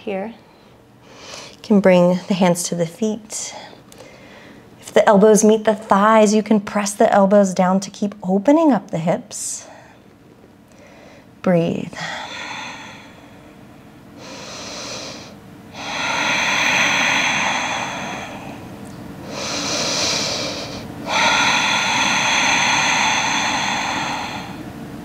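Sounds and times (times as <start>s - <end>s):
woman breathing deeply: 0.5s - 1.6s, 3.4s - 4.8s, 10.7s - 25.0s.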